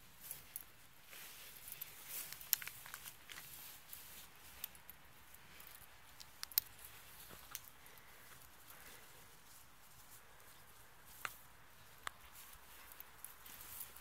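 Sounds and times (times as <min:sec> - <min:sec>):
sharp snaps and clicks: 0:01.7 - 0:03.5, 0:04.5 - 0:08.1, 0:12.0 - 0:14.0.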